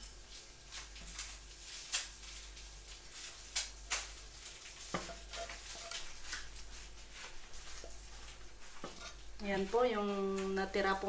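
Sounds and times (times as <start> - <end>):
hot oil sizzling: 0.0 - 11.0
spatula scraping frying pan: 4.2 - 10.3.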